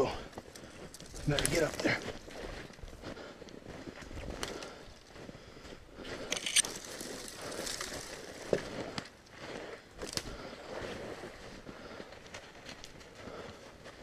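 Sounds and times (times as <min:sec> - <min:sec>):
footsteps in snow: 0:00.3 - 0:14.0
twigs clicking: 0:06.3 - 0:09.1
branches scraping clothing: 0:06.4 - 0:08.9.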